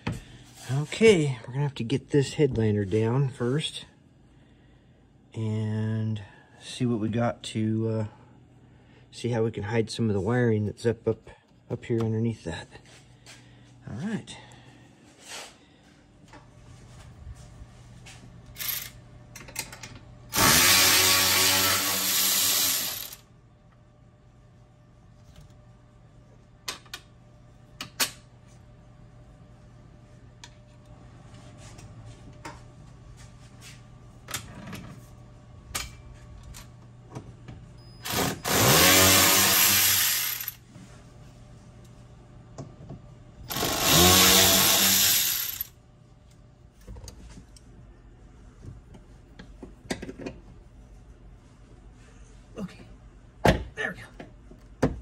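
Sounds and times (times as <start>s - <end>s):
cordless drill spinning up: 20.3s - 23.2s, 38.0s - 40.6s, 43.5s - 45.7s.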